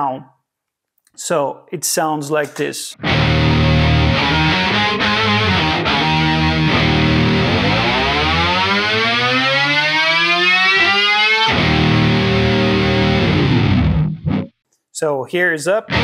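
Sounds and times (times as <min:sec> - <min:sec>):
distorted electric bass pitch bend: 0:03.0 - 0:14.5.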